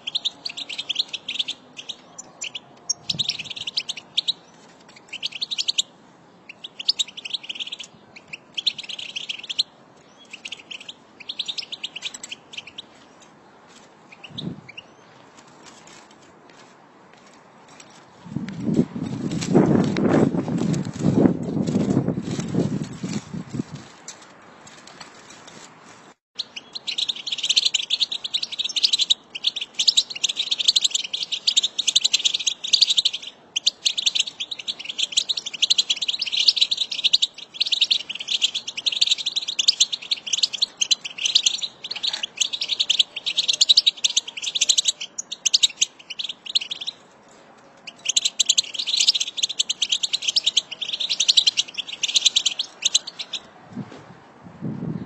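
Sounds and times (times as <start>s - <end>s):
finches twittering: 47.9s - 53.4s.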